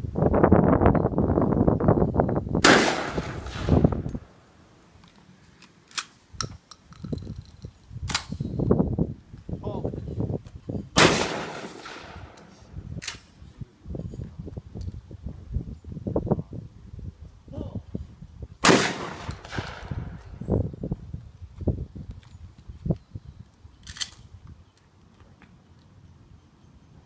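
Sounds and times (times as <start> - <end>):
wind rumbling on microphone: 0.0 - 4.5, 6.2 - 25.4
shotgun blasts: 2.6 - 4.0, 11.0 - 12.5, 18.6 - 20.2.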